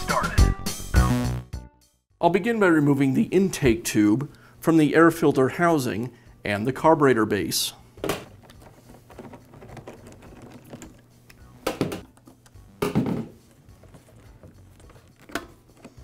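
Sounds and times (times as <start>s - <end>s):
tools clicking on hose clamps: 13.4s - 16.0s.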